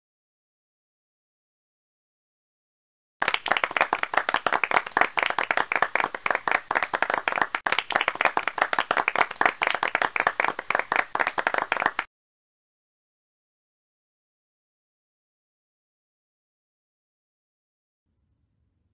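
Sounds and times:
hands clapping: 3.2s - 12.1s.

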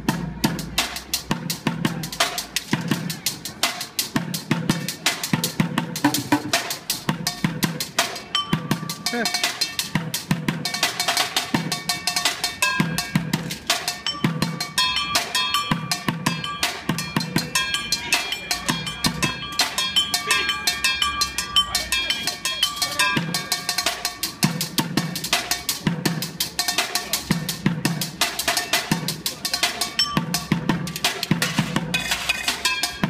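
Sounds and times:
ringing strikes on metal pots: 8.2s - 24.7s, 28.5s - 33.0s.

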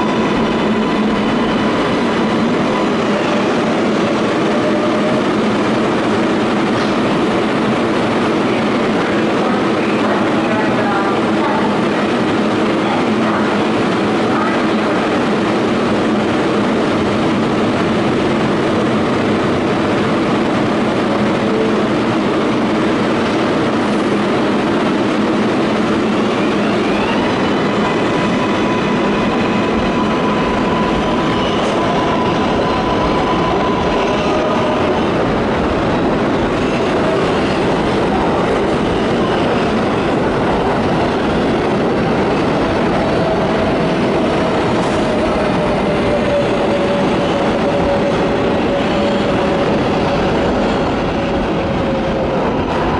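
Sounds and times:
subway train wheels rumbling: 0.0s - 52.9s.

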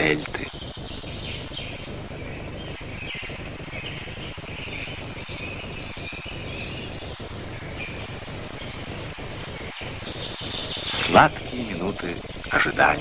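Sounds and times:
birds chirping: 0.0s - 13.0s
film soundtrack hiss and hum: 0.0s - 13.0s.

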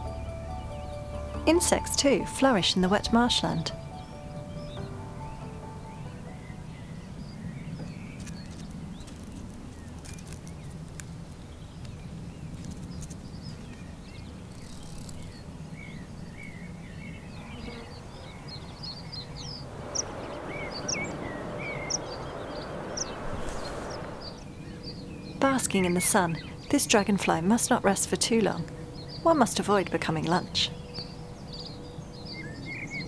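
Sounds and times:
bird chirps: 13.4s - 26.8s
low rumble: 19.1s - 25.4s
hiss: 19.6s - 24.4s.

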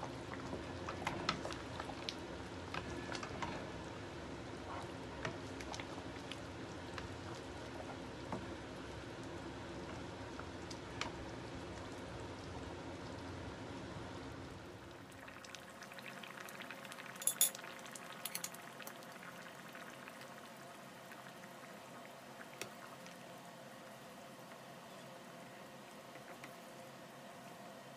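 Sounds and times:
sauce simmering and bubbling: 0.0s - 27.9s
metal spoon clinking on pan: 17.2s - 17.6s.

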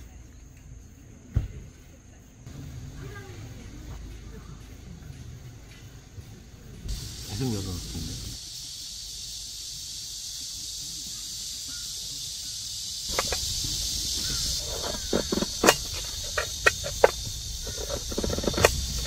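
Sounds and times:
insects chirring: 0.0s - 19.0s
knife clicking on metal plate: 14.2s - 18.8s.

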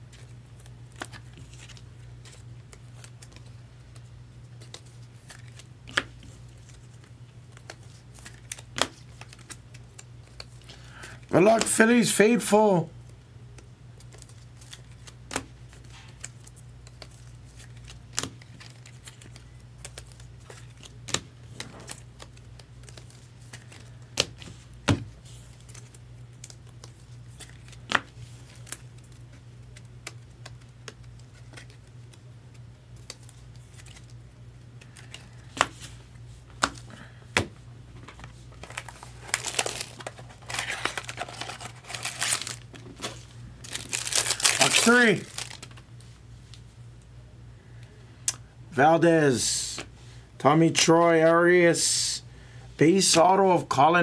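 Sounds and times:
crinkling wrapper: 38.1s - 46.0s.

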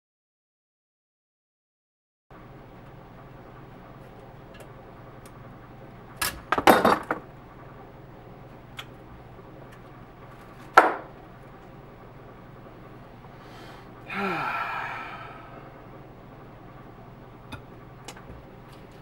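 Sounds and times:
steady low hum: 2.3s - 19.0s
metal tools clattering on workbench: 6.6s - 7.2s.

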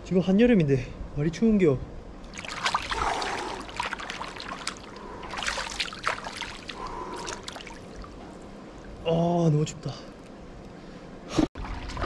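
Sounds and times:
hands splashing pool water: 2.2s - 8.3s.

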